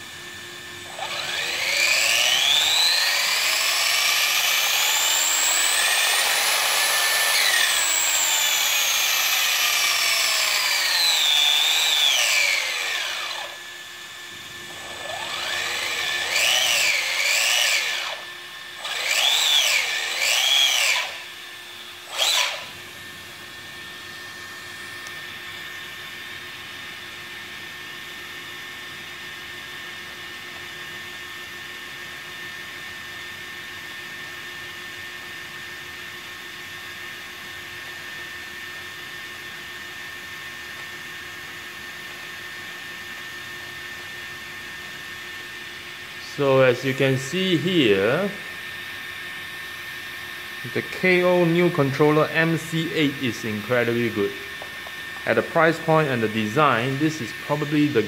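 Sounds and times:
electric motor whine: 0.0s - 27.2s, 39.3s - 58.0s.

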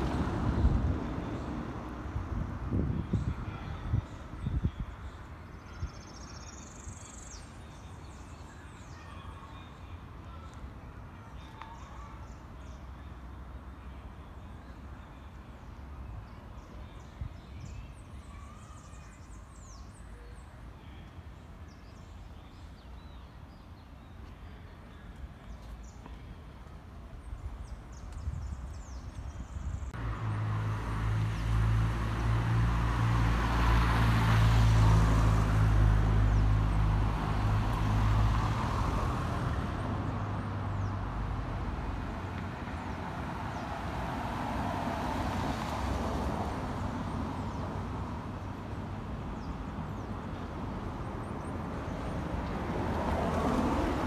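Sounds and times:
quiet street ambience: 0.0s - 54.0s
vehicle driving past: 30.0s - 42.3s.

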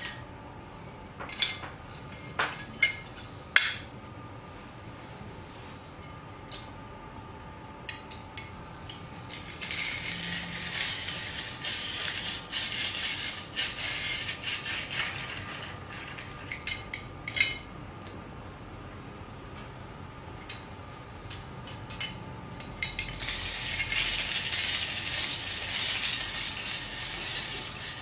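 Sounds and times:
drum grater rasping: 9.4s - 16.2s, 23.2s - 28.0s.

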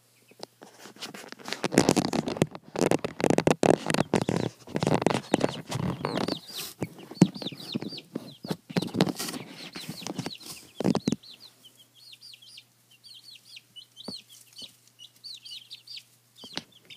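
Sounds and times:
chicks peeping: 0.0s - 16.9s
loud rustling and knocks: 0.6s - 11.2s.

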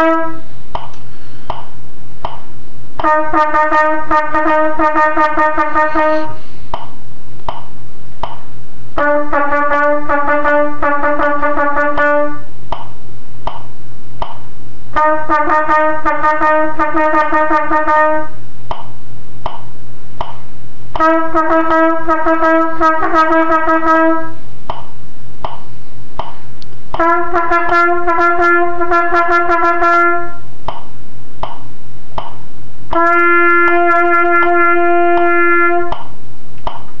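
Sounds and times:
trumpet playing tongued notes: 0.0s - 0.5s, 3.0s - 6.5s, 9.0s - 12.5s, 15.0s - 18.4s, 21.0s - 24.4s, 26.9s - 30.5s, 32.9s - 36.0s
metronome ticks: 0.7s - 3.2s, 7.5s - 9.2s, 11.8s - 14.4s, 18.7s - 21.9s, 24.7s - 25.6s, 26.2s - 27.9s, 30.7s - 31.6s, 32.2s - 33.1s, 35.1s - 37.0s.

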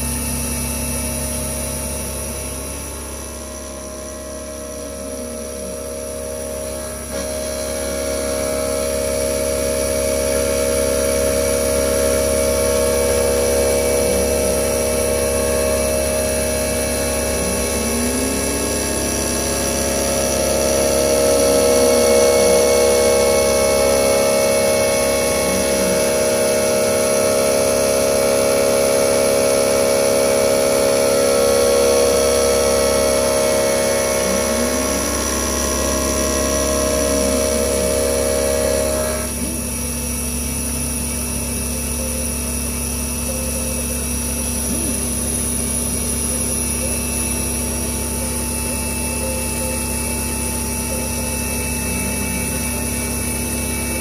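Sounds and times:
milling machine whining: 0.0s - 54.0s
faint tone rising and falling: 2.1s - 39.4s.

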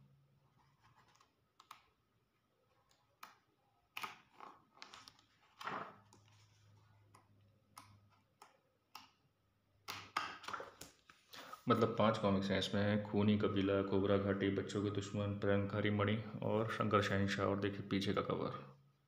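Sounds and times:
pages turning: 0.5s - 1.8s, 4.0s - 7.2s, 10.4s - 11.6s.

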